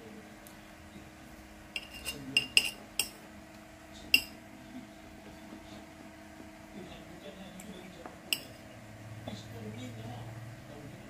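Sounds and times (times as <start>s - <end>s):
metal spoon clinking on plate: 1.8s - 3.2s, 4.1s - 4.4s.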